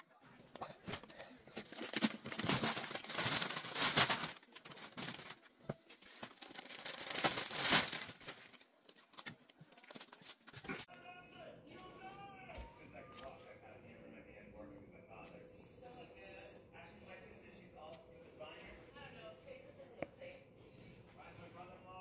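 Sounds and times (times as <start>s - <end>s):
chair cushions rustling and crinkling: 1.5s - 10.8s.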